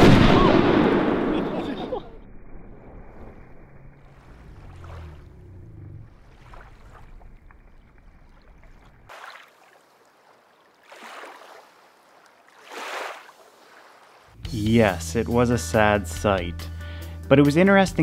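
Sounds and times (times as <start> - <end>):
lake water lapping against a dock: 4.0 - 14.4.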